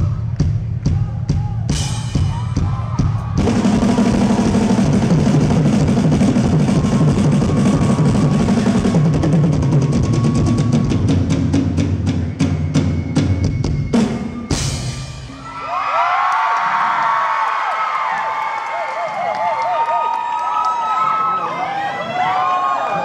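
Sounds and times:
drum kit solo: 0.0s - 15.8s
audience screaming and cheering: 0.0s - 23.0s.

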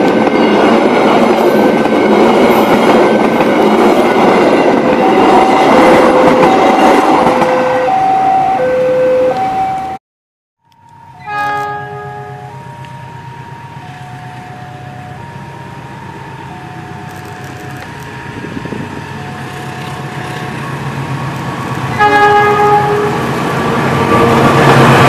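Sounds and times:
train wheel noise: 0.0s - 8.0s, 10.8s - 25.0s
two-note warning tone: 10.6s - 20.5s
locomotive horn blast: 11.2s - 12.6s, 21.9s - 24.6s.

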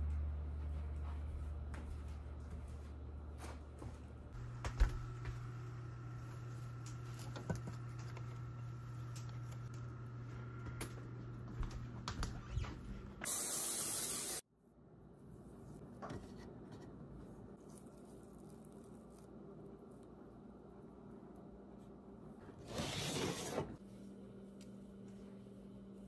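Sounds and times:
aerosol spray hissing: 13.2s - 14.4s.

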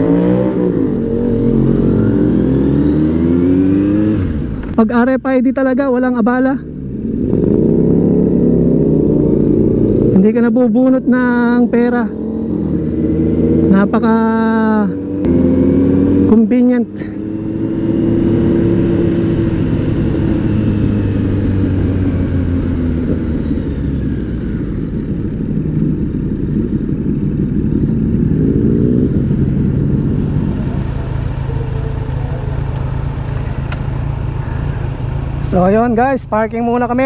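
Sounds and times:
motorcycle engine: 0.0s - 37.0s.

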